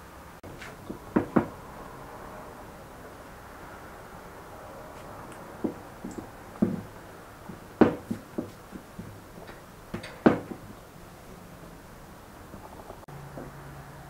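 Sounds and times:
rolling pin on wooden board: 5.6s - 6.9s, 7.5s - 9.2s.

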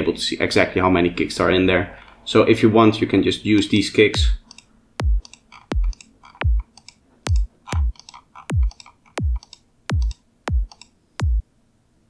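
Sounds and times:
kick drum samples: 4.2s - 4.4s, 5.0s - 6.7s, 7.3s - 11.4s.

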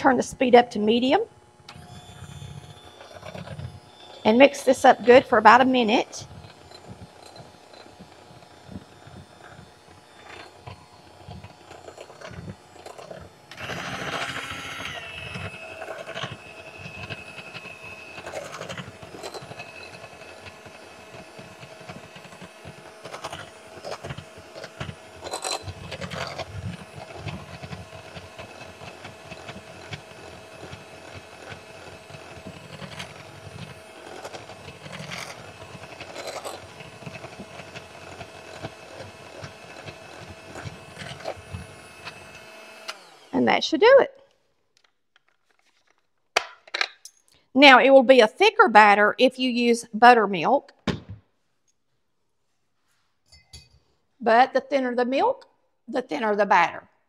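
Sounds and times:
electric hand mixer whine: 0.8s - 43.6s.

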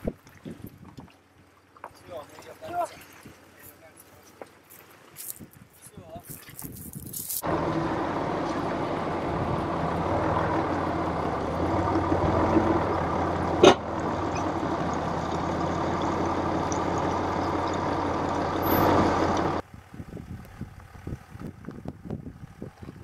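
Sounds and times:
car engine running: 7.4s - 22.9s.

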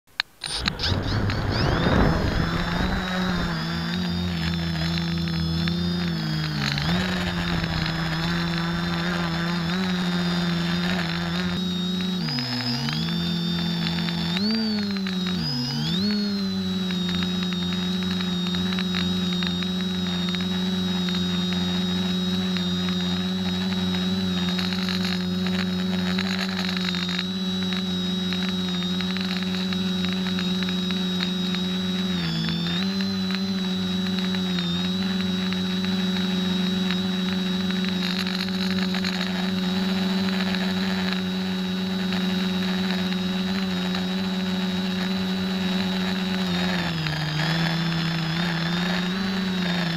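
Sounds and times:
drone motors buzzing: 0.1s - 49.9s
high steady whine: 0.1s - 49.9s.

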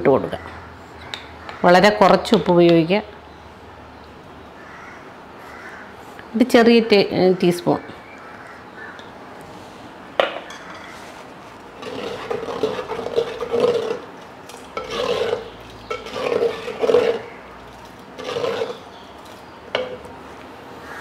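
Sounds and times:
wooden spoon scraping clay pot: 10.6s - 20.2s.

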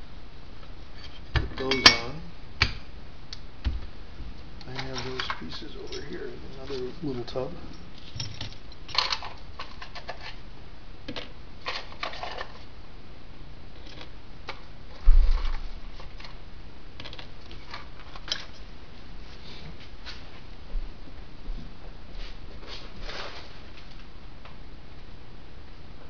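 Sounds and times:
metal parts clattering on wood: 4.7s - 6.8s, 8.0s - 10.4s, 11.6s - 12.6s.

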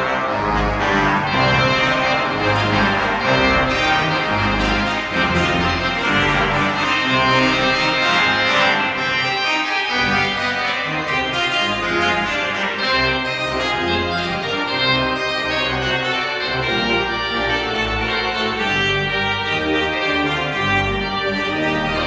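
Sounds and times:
church pipe organ chords: 0.0s - 22.0s
low organ pedal notes: 0.0s - 22.0s.

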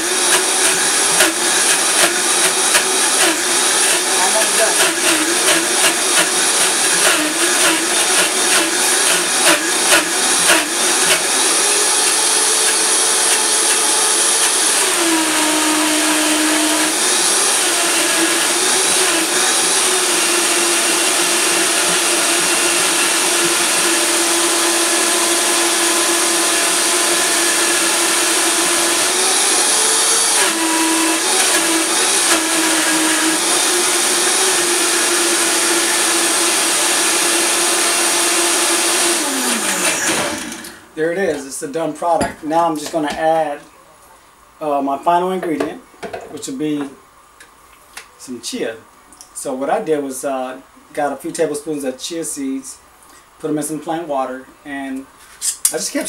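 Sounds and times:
blender motor whining: 0.0s - 40.9s.

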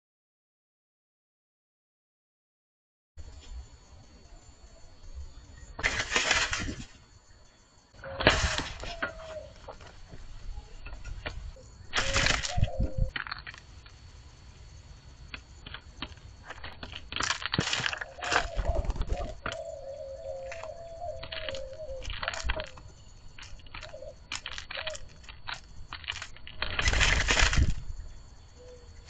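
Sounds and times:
doves pecking seed: 8.0s - 29.0s
wings flapping: 11.1s - 13.6s, 15.6s - 27.9s.

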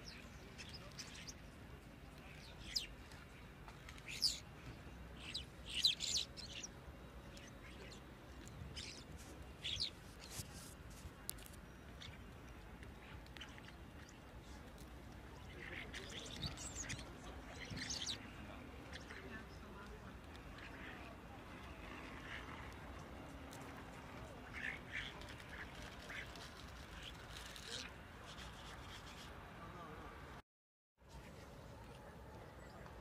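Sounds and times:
starlings chirping and squawking: 5.2s - 6.7s, 8.7s - 10.4s, 15.5s - 18.3s.

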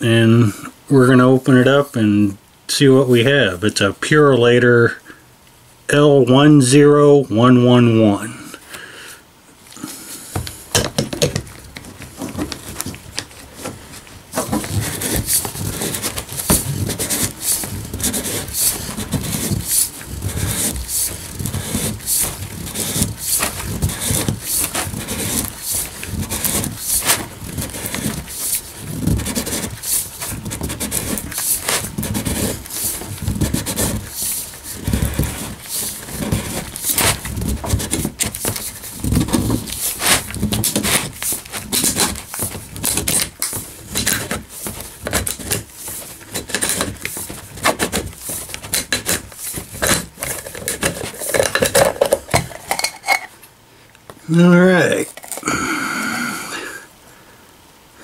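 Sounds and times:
cutter wheel scraping metal can: 14.3s - 53.3s.

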